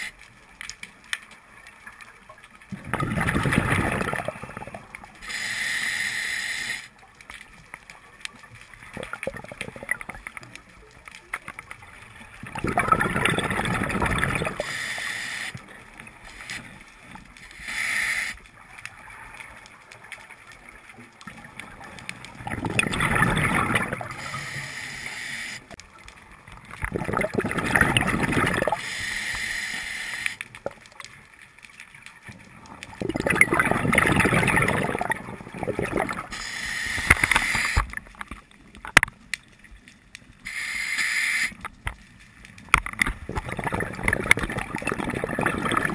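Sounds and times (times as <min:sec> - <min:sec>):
bubbling exhalations underwater: 0:02.7 - 0:04.8, 0:08.9 - 0:10.2, 0:12.4 - 0:14.7, 0:22.4 - 0:24.3, 0:26.8 - 0:28.8, 0:32.9 - 0:36.3, 0:43.0 - 0:45.9
regulator inhalation hiss: 0:05.2 - 0:07.0, 0:14.6 - 0:18.4, 0:24.1 - 0:25.8, 0:28.7 - 0:30.6, 0:36.3 - 0:38.0, 0:40.4 - 0:41.6.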